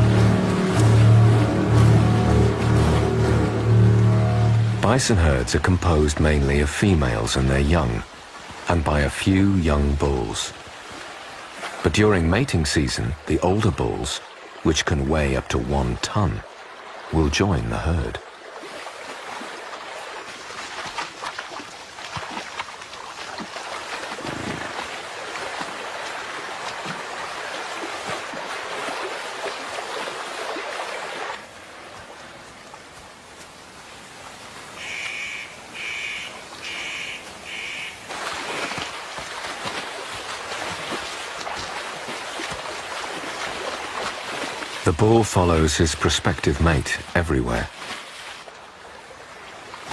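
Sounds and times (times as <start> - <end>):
animals wading through river water: 0.0 - 49.9
bird calling: 34.8 - 38.1.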